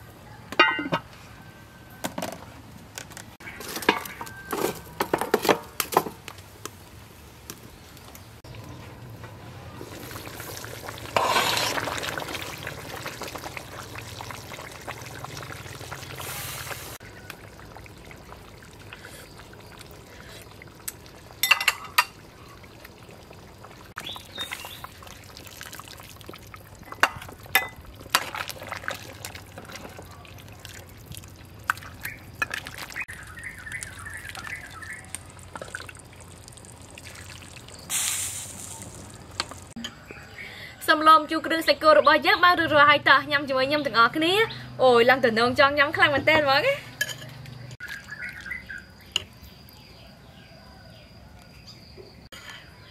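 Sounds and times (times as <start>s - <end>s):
metal ladle clinking against pot: 0.6s - 1.1s, 21.4s - 22.2s
soup bubbling with hiss: 9.4s - 40.8s
soup pouring into bowl: 23.1s - 33.0s.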